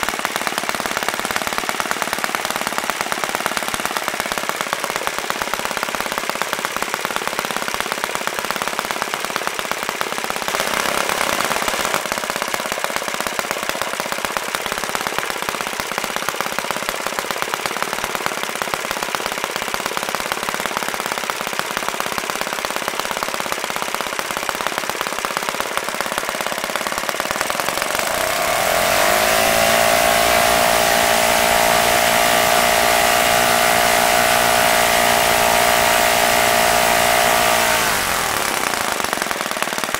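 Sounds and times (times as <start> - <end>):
model glow engine running: 0.0 - 39.9.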